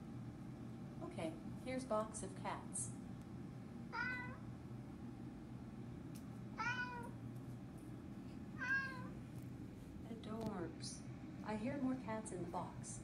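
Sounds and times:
cat meows from smart speaker: 3.9s - 4.4s, 6.6s - 7.1s, 8.6s - 9.1s.

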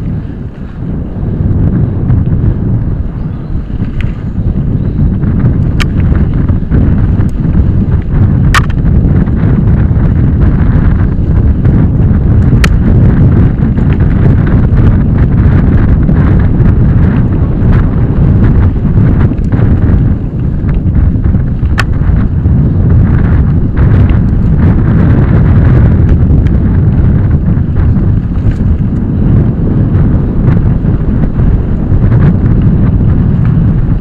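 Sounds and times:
bike rattling over dirt trail: 0.0s - 34.0s
wind buffeting microphone: 0.0s - 34.0s
sharp clicks: 8.0s - 8.9s.

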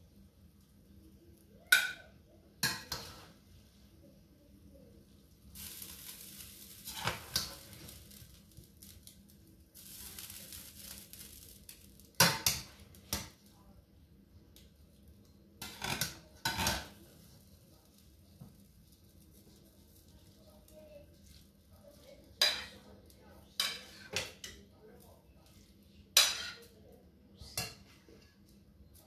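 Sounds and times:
soft hiss: 2.9s - 13.8s
metal server clinking on pot: 26.2s - 26.7s.

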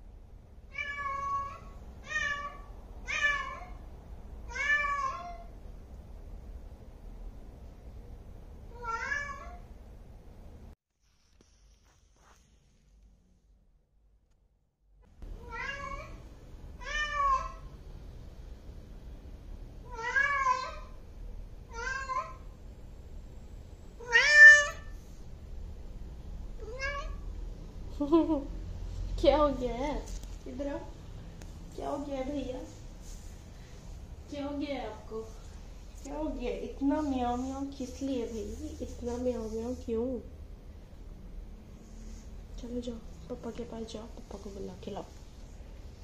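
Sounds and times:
cat meowing: 0.7s - 3.8s, 4.5s - 5.5s, 8.7s - 9.6s, 15.4s - 16.2s, 16.8s - 17.7s, 19.8s - 21.0s, 21.7s - 22.5s, 24.0s - 25.0s, 26.6s - 27.3s.

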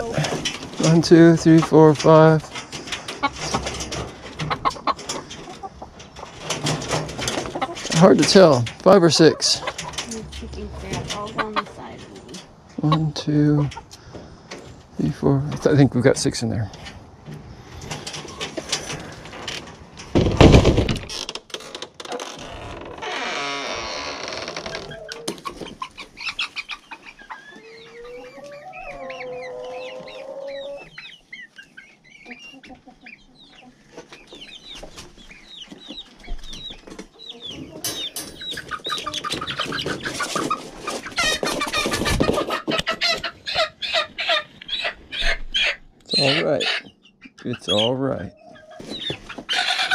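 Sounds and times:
chickens clucking and squawking: 0.0s - 21.1s, 23.0s - 49.9s.

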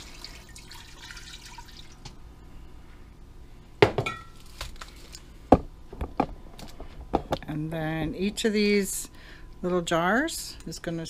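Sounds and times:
water trickling into pot: 0.0s - 2.1s
glass jar clinking: 4.0s - 4.4s.

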